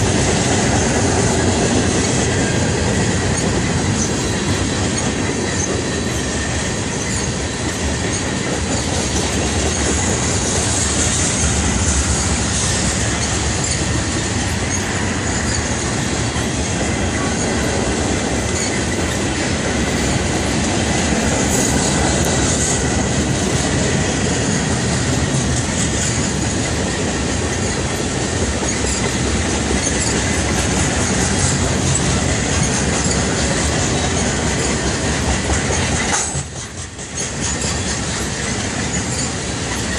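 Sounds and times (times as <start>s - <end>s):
train wheels rumbling on rails: 0.0s - 39.9s
high wheel squeal: 1.9s - 25.4s, 26.0s - 39.9s.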